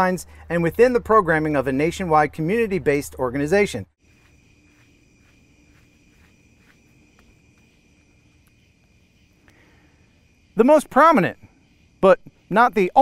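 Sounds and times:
faint crickets chirping: 4.0 - 13.0.

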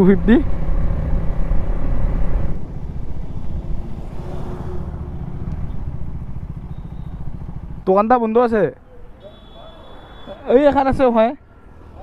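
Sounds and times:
motorcycle engine running: 0.0 - 10.3
wind rushing over microphone: 0.4 - 6.6.

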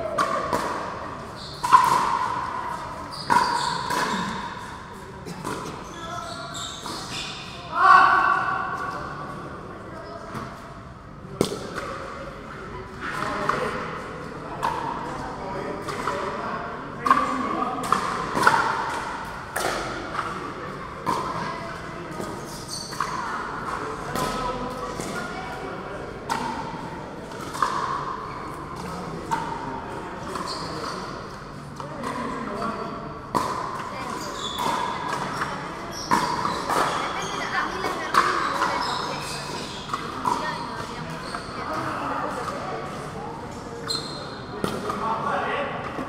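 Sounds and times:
ball bouncing on court: 33.3 - 41.8.

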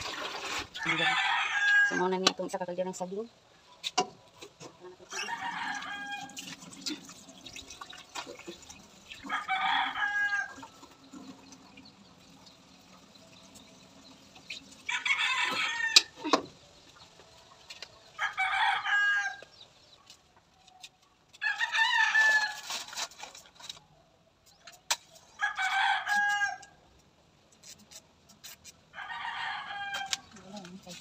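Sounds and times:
roosters crowing: 0.8 - 2.2, 5.1 - 6.5, 9.2 - 11.0, 14.9 - 16.3, 18.2 - 19.5, 21.4 - 22.7, 25.3 - 26.8, 28.9 - 30.3.

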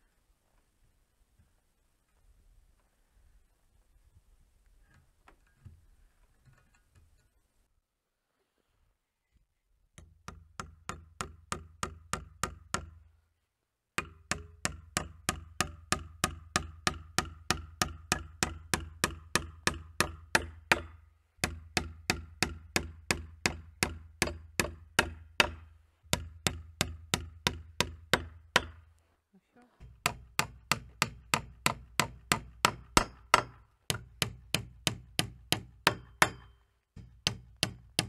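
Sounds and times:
hammer driving nails through metal: 14.0 - 25.6, 29.8 - 38.0.

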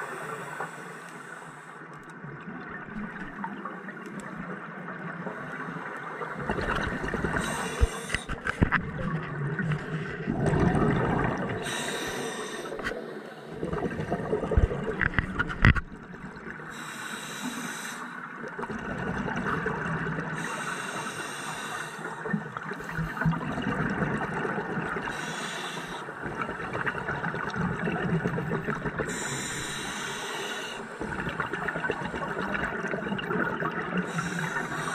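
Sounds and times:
exhaled bubbles rushing: 6.4 - 8.0, 8.8 - 11.8, 13.6 - 16.5, 18.6 - 20.4, 22.3 - 25.1, 26.2 - 29.2, 31.0 - 34.7
regulator breathing hiss: 7.4 - 8.3, 11.6 - 13.5, 16.7 - 18.2, 20.4 - 22.2, 25.1 - 26.2, 29.1 - 31.0, 34.1 - 34.9.

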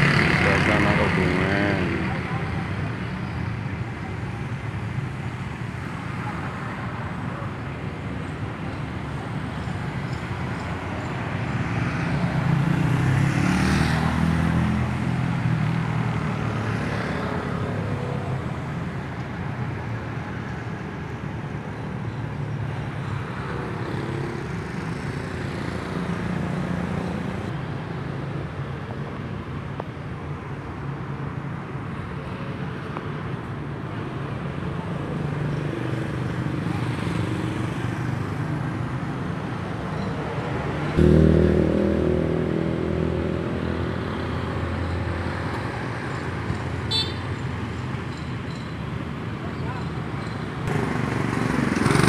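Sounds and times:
motorcycles and cars driving past: 0.0 - 7.5, 8.2 - 27.7, 33.2 - 49.8, 50.4 - 52.0
steady engine hum: 40.9 - 52.0.

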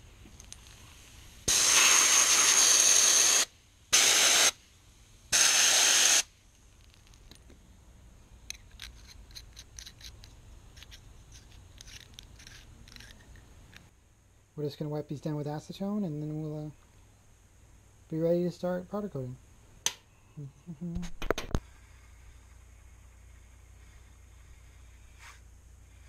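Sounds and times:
faint clicks and handling sounds: 0.2 - 0.9, 6.5 - 7.6, 8.4 - 13.9
compressed air gun hissing: 0.8 - 4.6, 5.3 - 6.3, 21.6 - 26.0.

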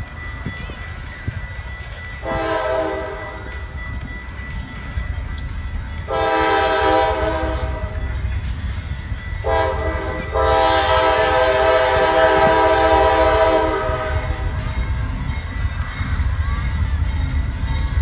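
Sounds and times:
locomotive air horn blasts: 2.2 - 3.4, 6.1 - 8.0, 9.4 - 14.5.

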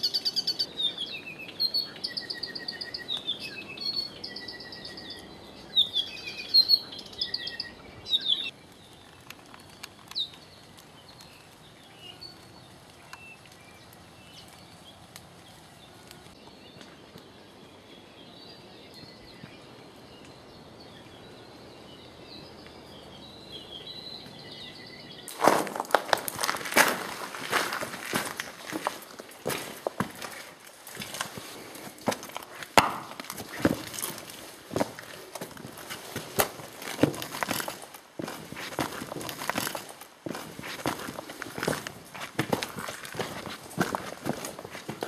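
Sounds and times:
quiet forest background: 0.0 - 45.0
small birds chirping and trilling: 0.0 - 45.0.

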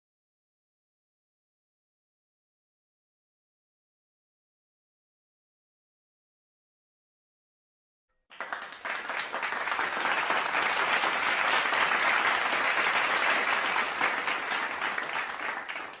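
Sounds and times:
crowd applauding: 8.3 - 16.0.

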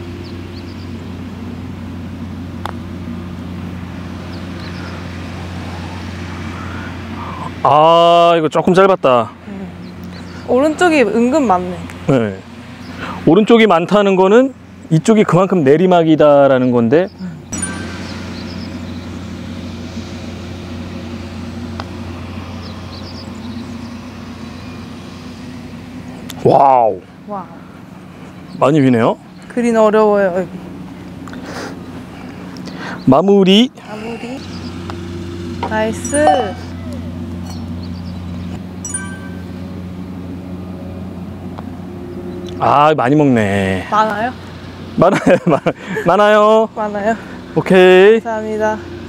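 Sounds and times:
low engine hum: 0.0 - 49.0
low hum: 17.3 - 29.5, 34.4 - 42.6.

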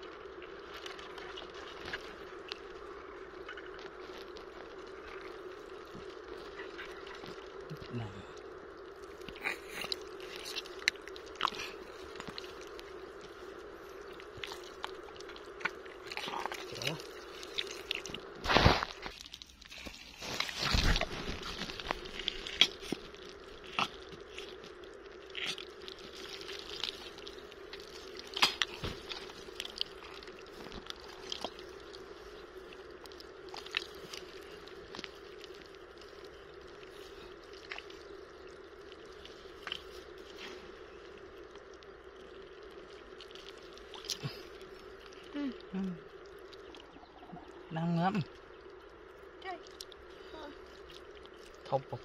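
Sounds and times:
steady low hum: 0.0 - 52.0
wet mud squelching: 8.9 - 41.8.

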